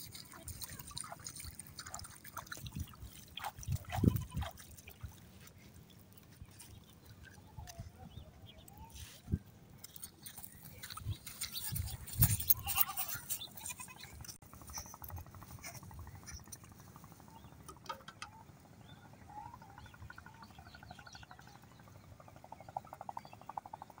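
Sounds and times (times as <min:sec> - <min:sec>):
footsteps on dry twigs and leaves: 0:09.9 - 0:15.6
goats bleating: 0:12.4 - 0:14.2.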